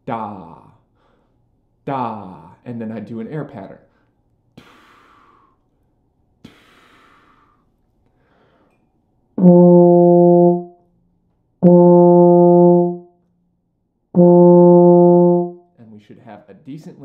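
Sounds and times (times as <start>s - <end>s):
euphonium low note: 9.4s - 10.8s, 11.6s - 13.1s, 14.2s - 15.6s.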